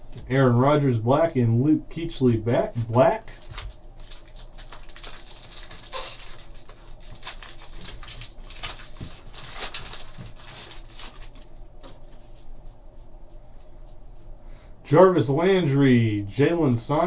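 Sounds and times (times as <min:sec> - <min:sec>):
foil wrapper crinkling: 0:03.3 - 0:12.4.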